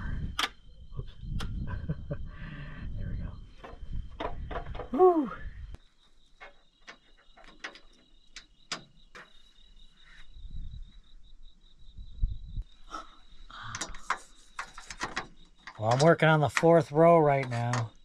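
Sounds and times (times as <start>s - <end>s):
crickets trilling: 0.0s - 18.0s
sharp clicks: 0.3s - 0.6s.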